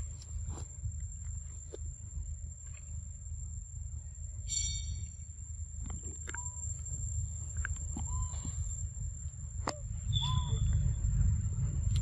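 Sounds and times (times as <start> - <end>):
high-pitched whine: 3.1 - 12.0
chirping calls: 4.4 - 5.3, 8.0 - 8.7, 9.8 - 11.0
low rumble: 6.4 - 12.0.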